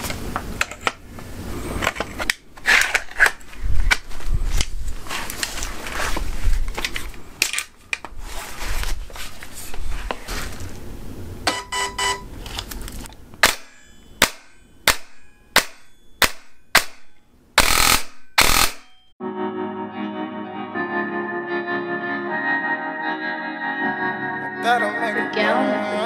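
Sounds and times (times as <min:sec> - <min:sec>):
airsoft rifle shots: 0:13.4 - 0:19.0.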